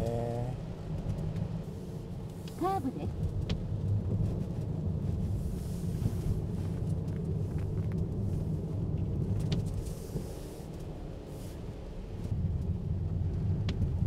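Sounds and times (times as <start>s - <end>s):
road rumble inside car cabin: 0.0s - 14.0s.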